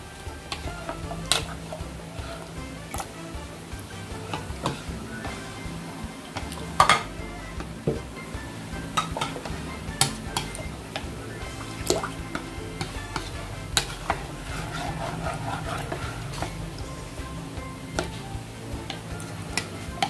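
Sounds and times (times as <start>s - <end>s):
metal spoon scraping a bowl: 12.8s - 16.8s.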